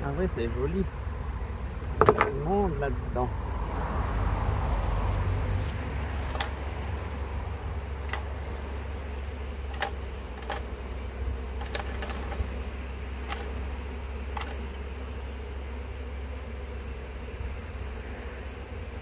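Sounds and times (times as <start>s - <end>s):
bees humming: 0.0s - 19.0s
sharp clicks: 6.2s - 6.6s, 8.0s - 8.4s, 9.7s - 10.7s, 11.6s - 12.5s, 13.2s - 13.6s, 14.3s - 14.6s.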